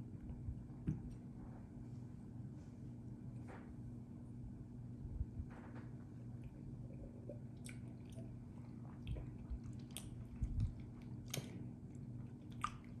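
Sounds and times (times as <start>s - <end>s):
lip smacks and tongue clicks: 9.1s - 11.6s, 12.3s - 13.0s.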